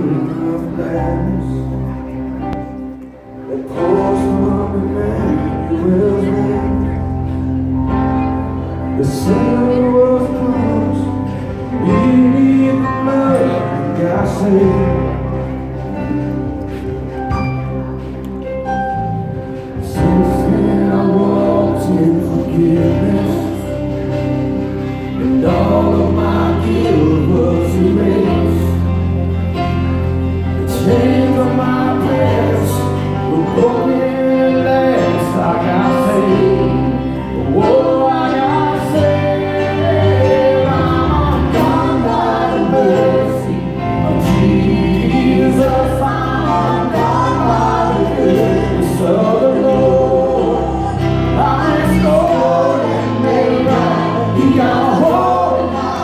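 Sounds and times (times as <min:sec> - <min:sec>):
guitar: 0:00.0 - 0:56.0
keyboard: 0:00.0 - 0:56.0
choir singing gospel song: 0:09.0 - 0:17.2, 0:19.6 - 0:56.0.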